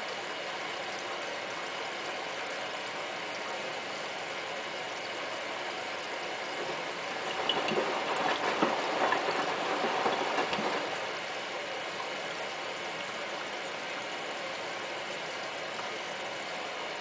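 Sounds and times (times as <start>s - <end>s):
washing machine drum tumbling: 6.4s - 11.3s.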